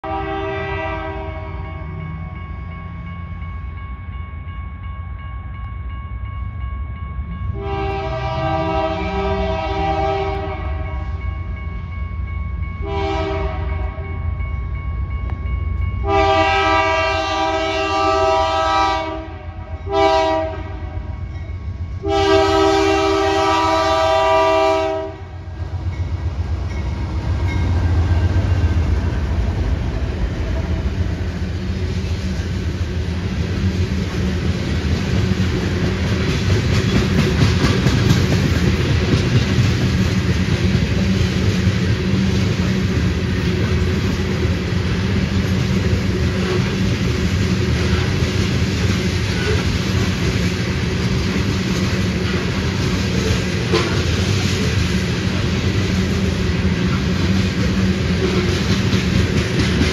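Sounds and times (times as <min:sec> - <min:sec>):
locomotive air horn blasts: 0:00.0 - 0:01.9, 0:07.6 - 0:11.1, 0:12.8 - 0:14.1, 0:16.0 - 0:21.1, 0:22.0 - 0:25.4, 0:53.2 - 0:54.2
train rumbling: 0:00.0 - 0:59.9.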